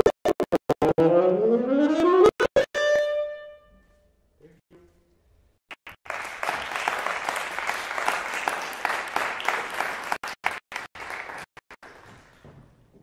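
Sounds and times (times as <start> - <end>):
audience applause: 5.8 - 12.1.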